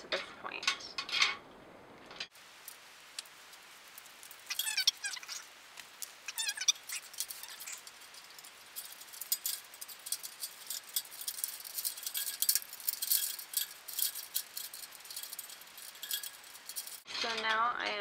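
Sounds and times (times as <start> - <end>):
wire and plastic bulbs rattling on metal: 0.0 - 2.8, 3.9 - 18.0.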